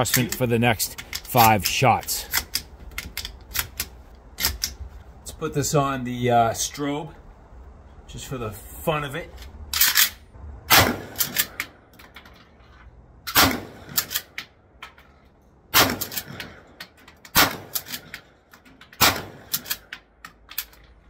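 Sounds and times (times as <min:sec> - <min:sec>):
shotgun pump clacks: 0:00.0 - 0:04.8, 0:16.0 - 0:20.8
loud shotgun shots: 0:10.7 - 0:11.6, 0:13.3 - 0:14.2, 0:15.7 - 0:16.6, 0:17.3 - 0:18.0, 0:19.0 - 0:19.7.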